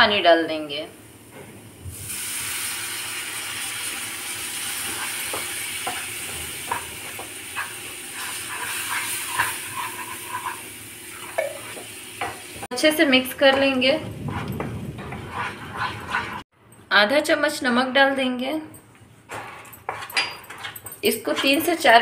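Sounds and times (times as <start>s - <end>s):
water sizzling in hot pan: 1.9s - 12.7s.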